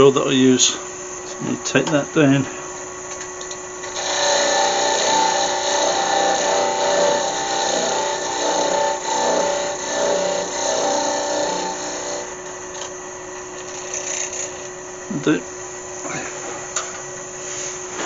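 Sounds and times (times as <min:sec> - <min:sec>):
lathe humming: 0:00.0 - 0:17.5
turning tool cutting wood: 0:03.8 - 0:12.6, 0:13.5 - 0:14.8.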